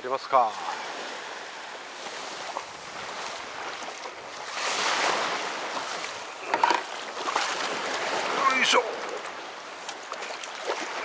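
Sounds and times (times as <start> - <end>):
water lapping around kayak: 0.0 - 11.0.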